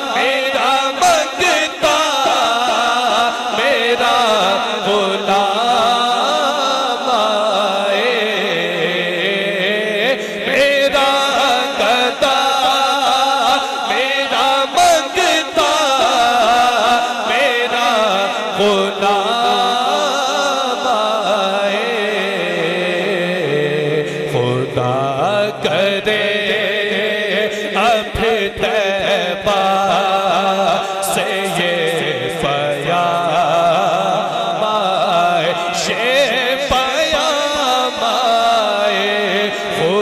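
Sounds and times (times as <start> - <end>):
men singing devotional chant: 0.0 - 40.0.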